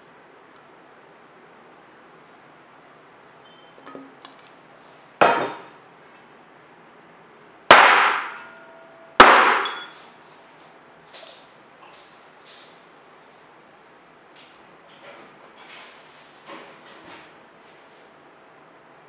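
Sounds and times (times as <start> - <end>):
metal kitchenware clanking: 9.6 - 10.0.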